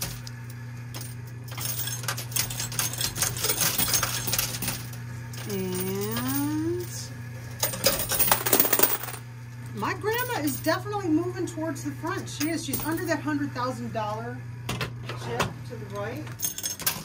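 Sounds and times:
low machine hum: 0.0s - 17.0s
coins clinking and clattering: 1.0s - 6.9s, 7.6s - 9.2s, 16.4s - 17.0s.

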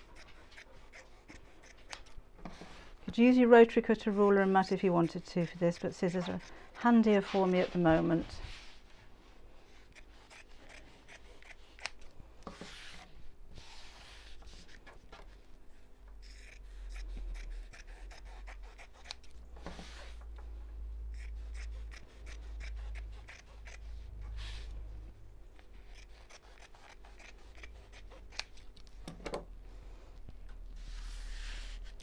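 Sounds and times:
scissors snipping: 0.1s - 2.2s, 10.3s - 12.1s, 16.2s - 19.4s, 25.9s - 28.9s.

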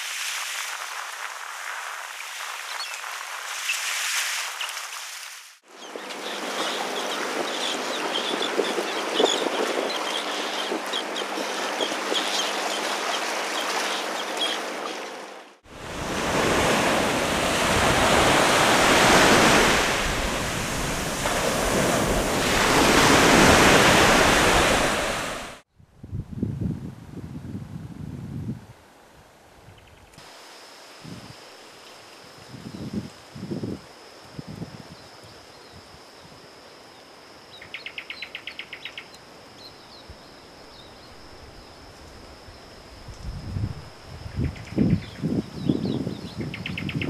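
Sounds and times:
wind and surf rushing: 0.0s - 28.9s, 40.1s - 47.0s
terns calling: 5.6s - 15.2s, 37.5s - 41.6s
wind buffeting microphone: 15.8s - 28.8s, 43.1s - 47.0s.

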